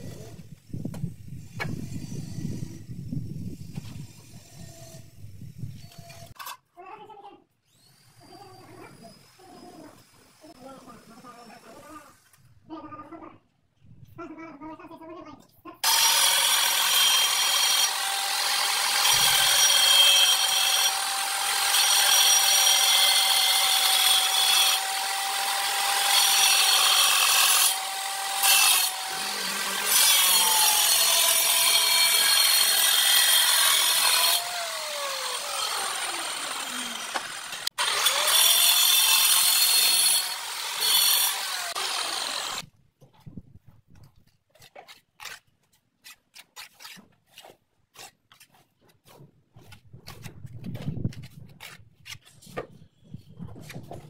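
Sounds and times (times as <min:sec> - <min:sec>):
angle grinder cutting tile: 0:15.8 - 0:42.6.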